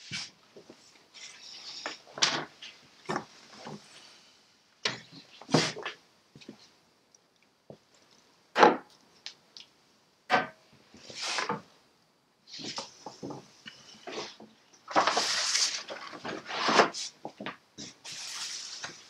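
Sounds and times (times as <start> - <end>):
paper rustling: 14.1 - 19.0.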